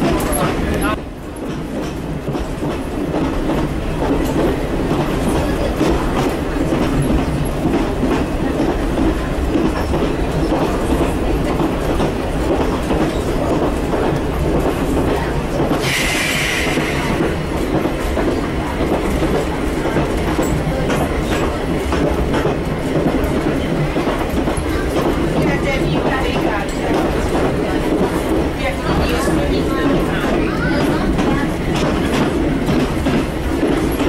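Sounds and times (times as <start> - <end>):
railcar diesel engine running: 0.0 - 34.0
wheels on rail: 0.0 - 34.0
brief high hiss: 15.8 - 17.1.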